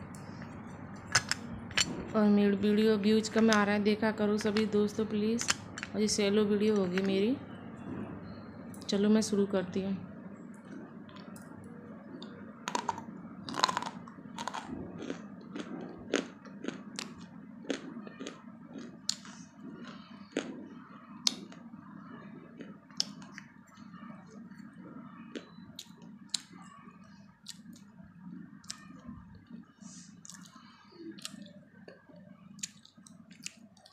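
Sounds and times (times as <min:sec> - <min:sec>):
person biting and chewing chalk: 0:12.7 - 0:20.6.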